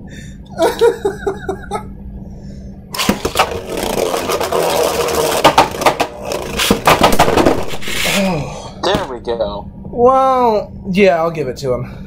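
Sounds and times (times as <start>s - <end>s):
person laughing: 0.5s - 1.9s
spinning tops whirring: 3.0s - 8.2s.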